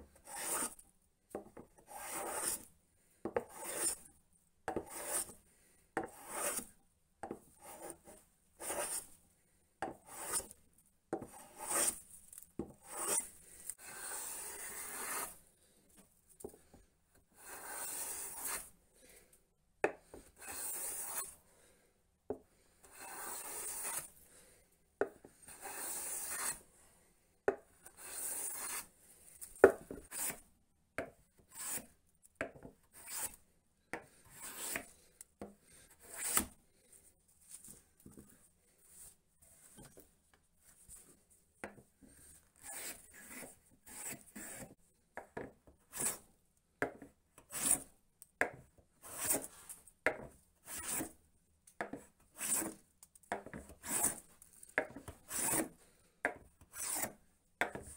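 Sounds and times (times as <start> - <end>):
hand plane planing wood: 0.3 - 0.7, 1.9 - 2.6, 3.4 - 3.9, 4.7 - 5.3, 6.0 - 6.6, 8.6 - 9.0, 11.6 - 11.9, 13.9 - 15.2, 17.4 - 18.6, 33.0 - 33.3, 36.0 - 36.5, 52.4 - 52.8, 53.8 - 54.2, 55.2 - 55.7, 56.8 - 57.1.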